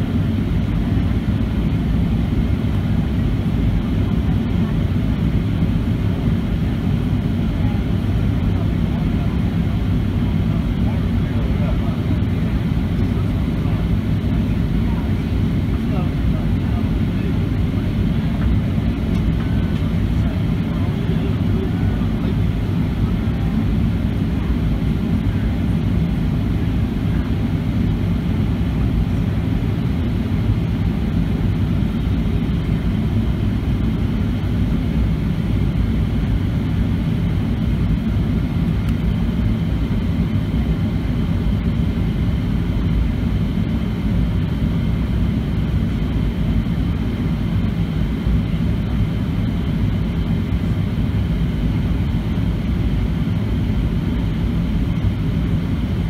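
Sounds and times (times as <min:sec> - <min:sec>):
jet engine drone: 0:00.0 - 0:56.0.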